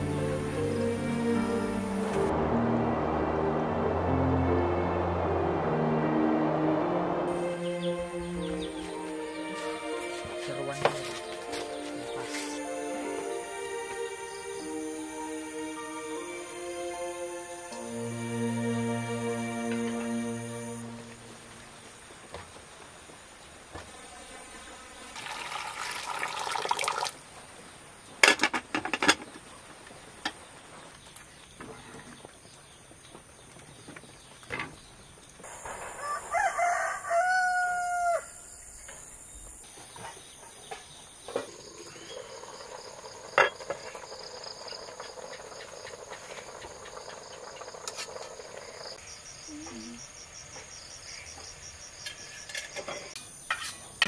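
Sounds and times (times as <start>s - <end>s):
rustle: 27.2s - 37.5s
rooster crowing: 35.8s - 38.8s.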